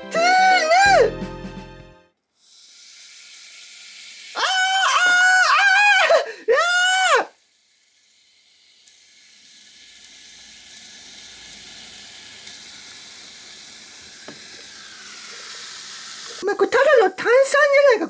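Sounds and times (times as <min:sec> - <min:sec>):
fizzing hiss in plastic cup: 0:02.2 - 0:04.4, 0:07.4 - 0:16.4.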